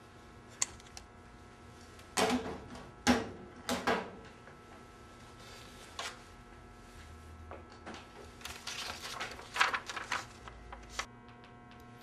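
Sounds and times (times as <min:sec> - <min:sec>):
papers rustling: 0:08.4 - 0:11.1.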